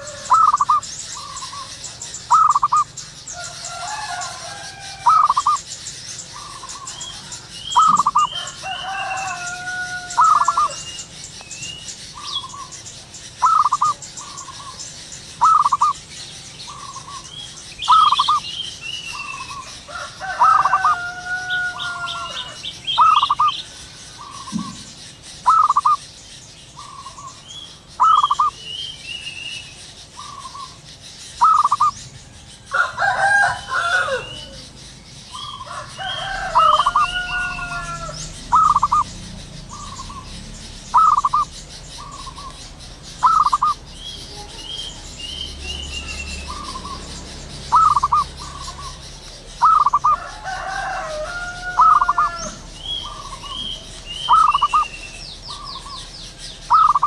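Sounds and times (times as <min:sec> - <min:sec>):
dove cooing: 0:00.0 - 0:11.1, 0:13.3 - 0:16.0, 0:16.7 - 0:18.5, 0:19.1 - 0:26.0, 0:28.0 - 0:28.6, 0:31.4 - 0:32.0, 0:32.6 - 0:45.0, 0:46.4 - 0:57.0
small birds chirping: 0:00.0 - 0:57.0.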